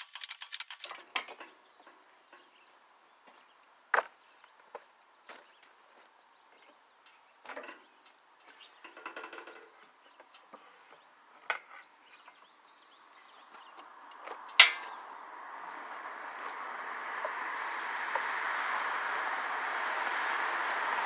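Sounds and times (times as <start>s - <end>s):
metal and wood knocks: 8.5s - 10.3s, 14.2s - 15.1s.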